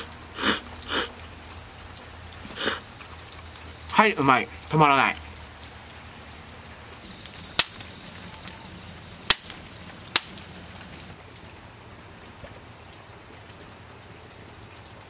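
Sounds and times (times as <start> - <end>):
wood fire crackling: 0.0 - 15.0
sharp loud pops of fire: 7.2 - 8.0, 9.2 - 10.5.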